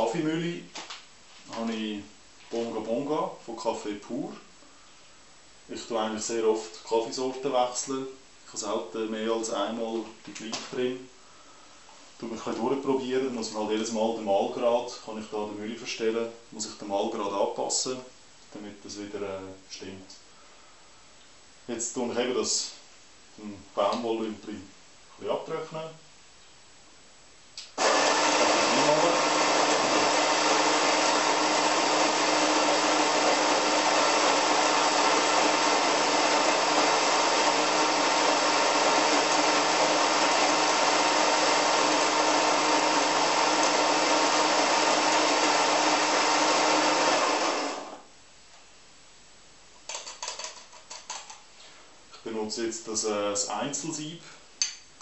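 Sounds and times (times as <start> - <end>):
coffee grinder motor humming: 27.8 - 48.0.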